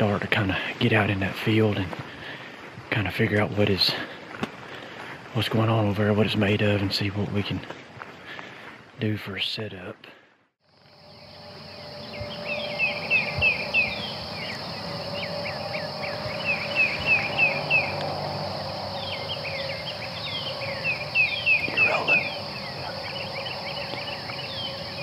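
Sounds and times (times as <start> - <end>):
high insect drone: 10.6 - 25.0
songbird whistling: 11.6 - 25.0.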